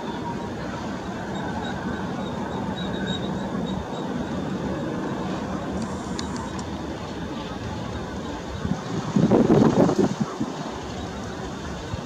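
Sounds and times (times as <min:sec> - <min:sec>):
jet engines running: 0:00.0 - 0:12.0.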